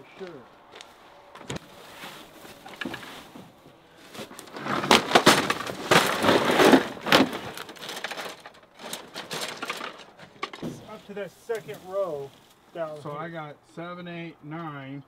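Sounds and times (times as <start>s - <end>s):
dry grass crackling: 0.0s - 13.4s
plastic bag rustling: 1.6s - 12.6s.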